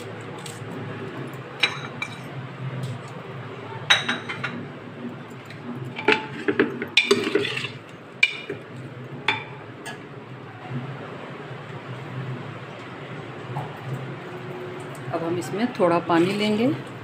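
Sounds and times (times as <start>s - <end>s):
cutlery clinking on metal pot: 5.9s - 8.6s.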